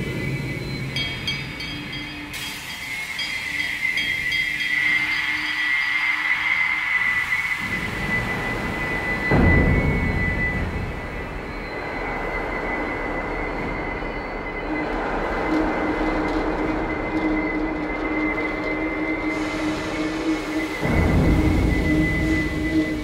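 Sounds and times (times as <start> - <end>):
low held tone: 0.0 - 23.0
dense rushing noise: 6.2 - 23.0.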